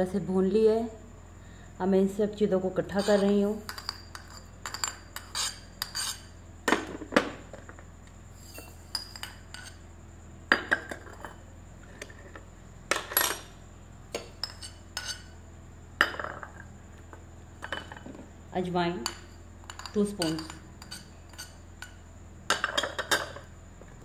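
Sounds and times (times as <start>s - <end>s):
metal spoon scraping ceramic plates: 2.9s - 6.4s, 8.4s - 9.8s, 14.4s - 15.4s, 19.0s - 22.0s.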